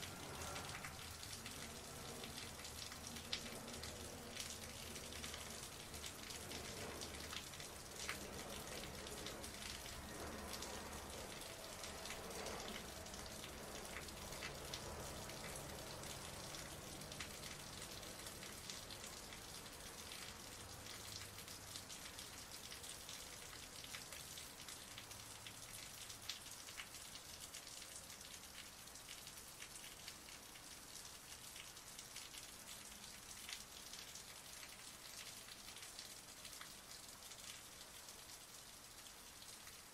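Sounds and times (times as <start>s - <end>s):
heavy rain splashing: 0.0s - 39.9s.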